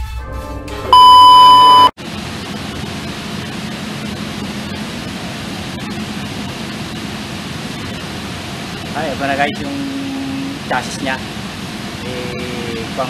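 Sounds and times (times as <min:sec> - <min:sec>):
electronic beep: 0:00.9 - 0:02.0.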